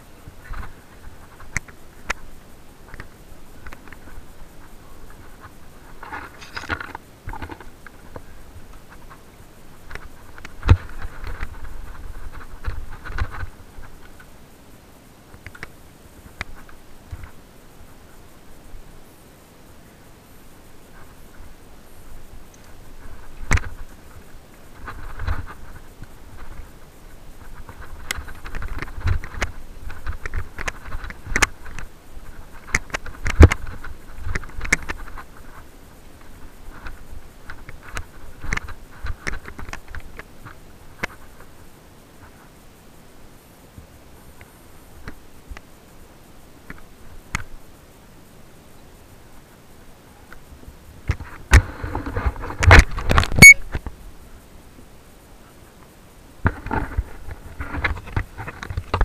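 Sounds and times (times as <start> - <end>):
bike rattling: 0.0 - 14.3
bike tyres scraping over dirt: 0.1 - 14.3
bike chain and frame rattling: 5.2 - 8.1.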